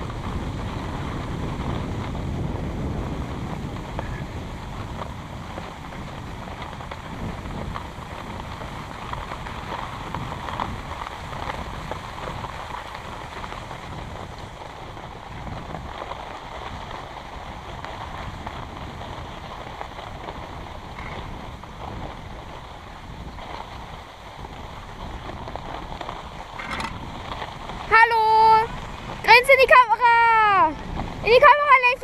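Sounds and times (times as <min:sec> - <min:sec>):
skis scraping over packed snow: 0:00.0 - 0:32.0
wind rumble on microphone: 0:00.0 - 0:32.0.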